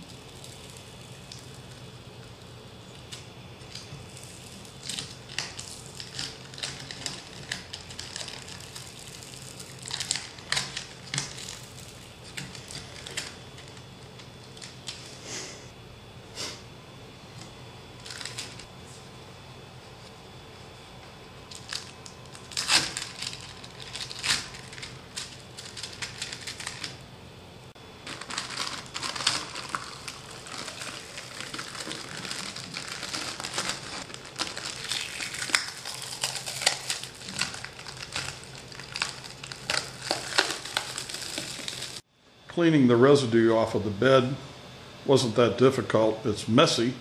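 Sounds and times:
plastic sheet crinkling: 3.6s - 13.8s, 18.0s - 18.7s, 21.5s - 27.0s, 27.9s - 42.0s.

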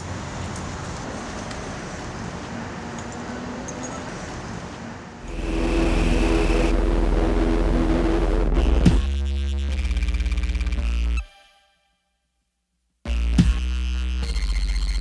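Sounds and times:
street traffic: 0.0s - 8.5s
hum with low rumble and hiss: 5.3s - 10.8s.

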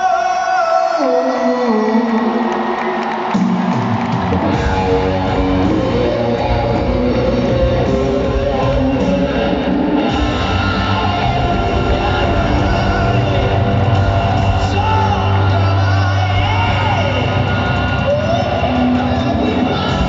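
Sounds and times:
live pop-rock band: 0.0s - 20.0s
electric guitar: 2.1s - 20.0s
drum kit: 3.1s - 20.0s.

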